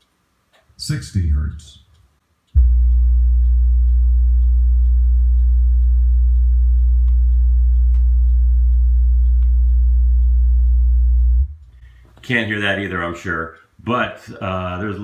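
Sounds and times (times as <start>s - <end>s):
subwoofer low test tone: 2.5s - 11.8s.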